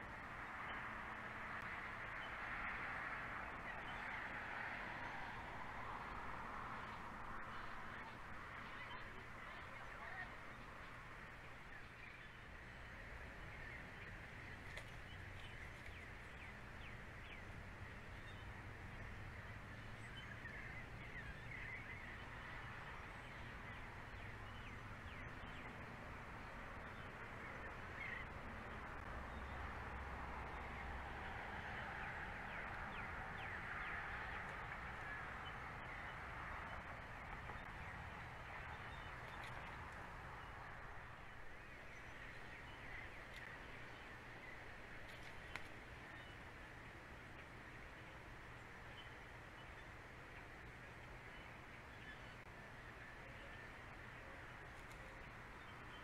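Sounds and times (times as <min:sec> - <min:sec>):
distant birds chirping: 0:00.0 - 0:56.0.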